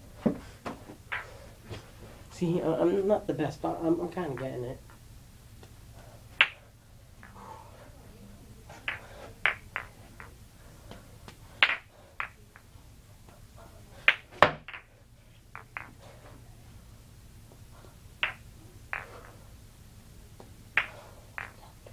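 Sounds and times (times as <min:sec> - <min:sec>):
juggling balls slapping into palms: 0:00.2 - 0:01.3, 0:05.6 - 0:06.6, 0:07.2 - 0:07.4, 0:08.7 - 0:13.4, 0:14.0 - 0:14.9, 0:15.5 - 0:16.4, 0:18.2 - 0:19.4, 0:20.3 - 0:21.9.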